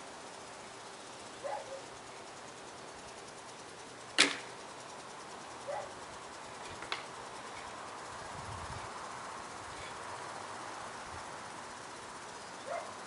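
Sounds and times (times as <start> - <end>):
steady outdoor hiss: 0.0 - 13.0
sharp crack: 4.2 - 4.5.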